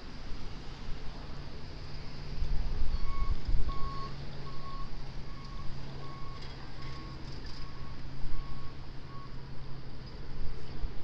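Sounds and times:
vehicle backup alarm beeping: 2.9 - 9.4.

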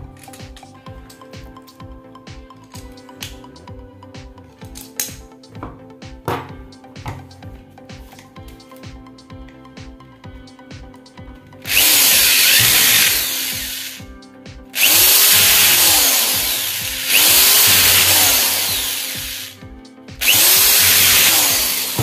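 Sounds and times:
power screwdriver running: 11.7 - 14.1, 14.8 - 19.6, 20.2 - 22.0.

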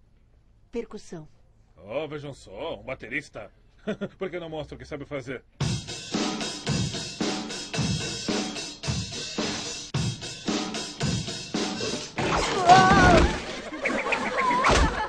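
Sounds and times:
drum kit steady beat: 5.6 - 12.2.

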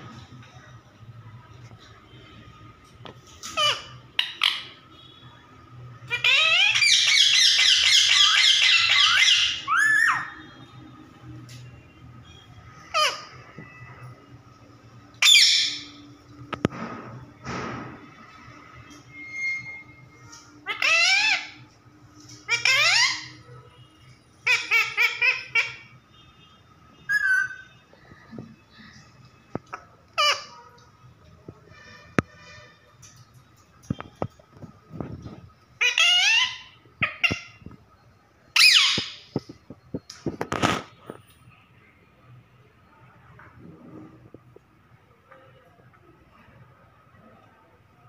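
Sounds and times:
parakeet squawk: 3.5 - 4.8, 6.1 - 10.4, 12.8 - 13.4, 15.2 - 16.0, 20.6 - 21.6, 22.5 - 23.4, 24.4 - 25.9, 27.1 - 27.6, 29.7 - 30.7, 35.8 - 37.6, 38.6 - 39.3.

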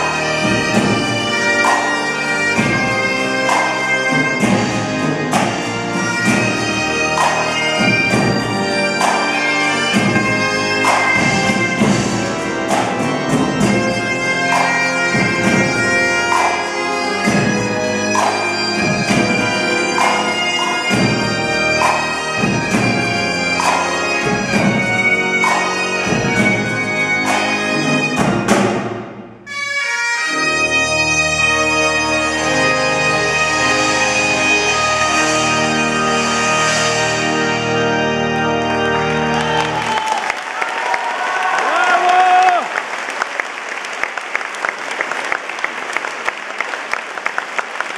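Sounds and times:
bagpipes playing a tune: 0.0 - 40.2
pipe organ: 0.0 - 40.6
snare and bass drums: 9.9 - 13.9, 23.6 - 29.2.

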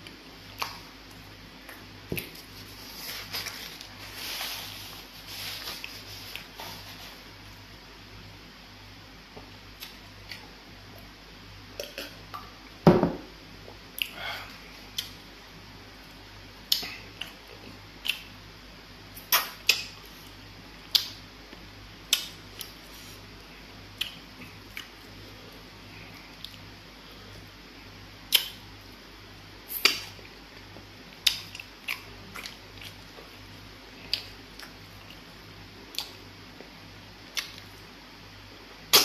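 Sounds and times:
deep thump: 12.9 - 13.3.

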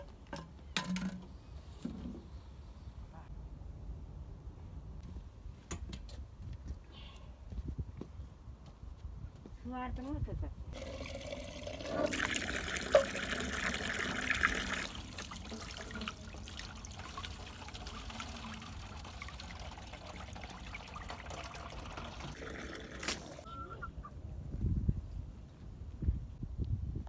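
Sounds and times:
water pouring into stone trough: 10.8 - 23.4.

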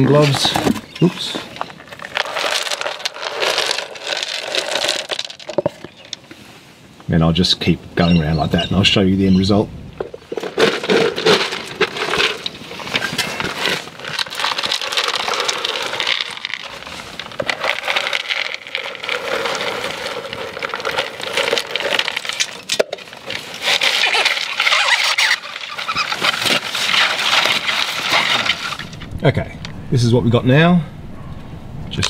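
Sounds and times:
dry ice pellets crackling: 0.0 - 6.4, 10.0 - 29.2
pellets squealing against metal: 23.6 - 28.8.

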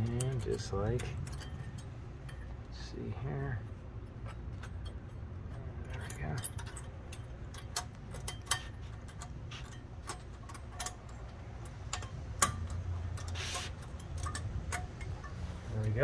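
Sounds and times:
metal clips clicking into bracket: 4.3 - 15.4.

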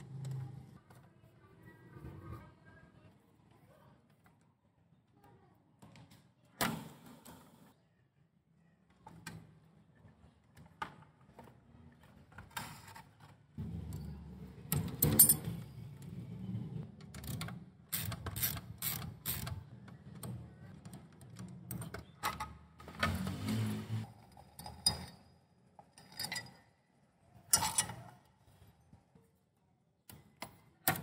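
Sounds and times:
metallic clicks of motorcycle parts: 27.5 - 28.2.

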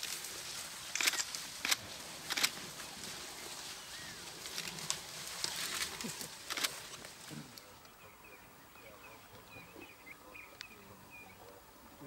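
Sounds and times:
dry branches snapping: 4.4 - 7.6.

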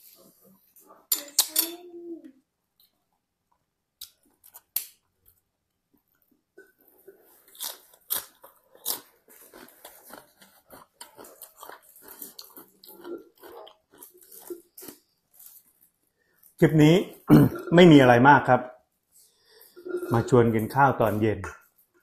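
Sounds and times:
person chewing and crunching food: 6.1 - 17.8.

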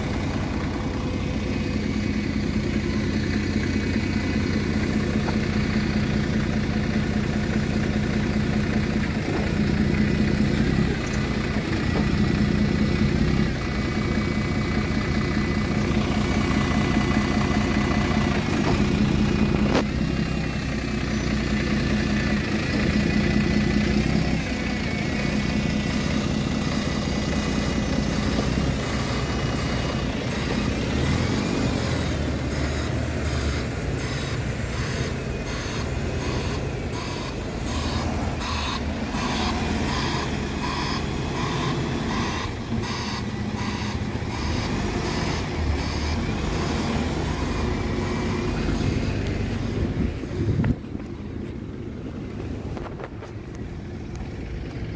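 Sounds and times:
bus engine pulling away: 0.0 - 54.9
beeping alarm: 30.9 - 48.6.

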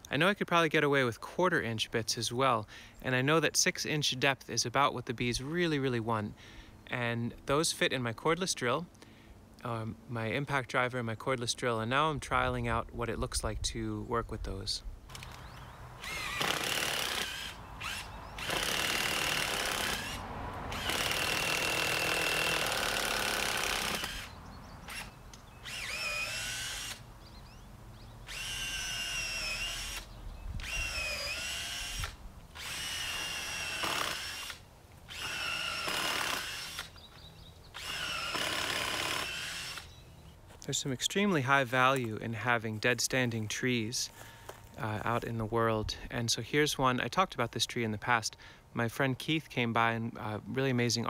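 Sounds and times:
cordless drill boring into wood: 15.1 - 27.0, 28.3 - 37.0, 37.7 - 40.0.

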